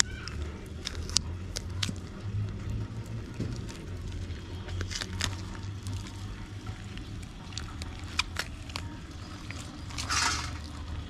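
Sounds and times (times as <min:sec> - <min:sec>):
low hum: 0:00.0 - 0:11.0
rustling scrape: 0:09.9 - 0:10.8.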